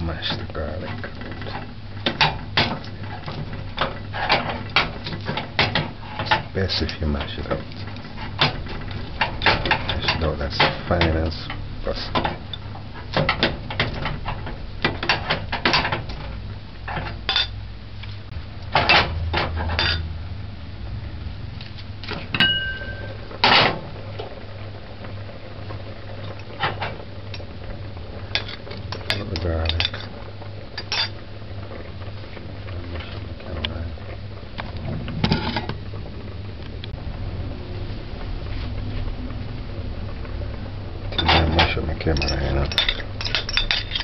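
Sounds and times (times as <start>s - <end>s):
utensils clinking on metal pot: 19.4s - 20.1s, 28.3s - 30.1s, 30.8s - 31.2s, 41.1s - 44.0s.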